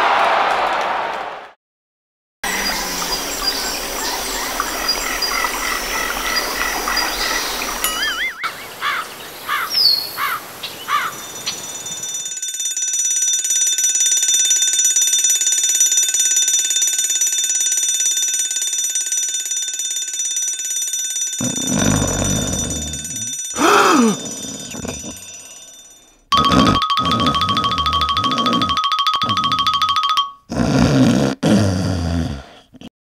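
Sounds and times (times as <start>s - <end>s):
bird chirps: 2.5s - 11.6s
frogs chirping: 2.5s - 11.8s
alarm clock ringing: 11.2s - 30.4s.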